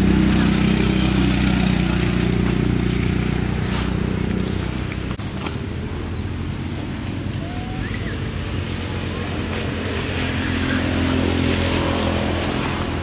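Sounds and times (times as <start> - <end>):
motor engine droning: 0.0 - 5.2.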